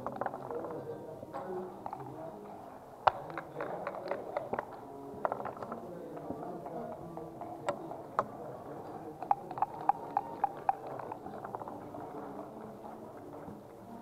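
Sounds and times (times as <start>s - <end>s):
dice and checkers clicking: 0.0s - 0.8s, 3.0s - 8.3s, 9.0s - 12.6s
murmur of voices: 0.0s - 14.0s.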